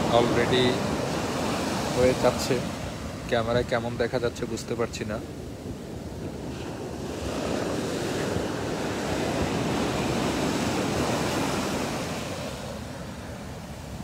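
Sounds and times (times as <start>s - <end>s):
waves breaking on sand: 0.0s - 14.0s.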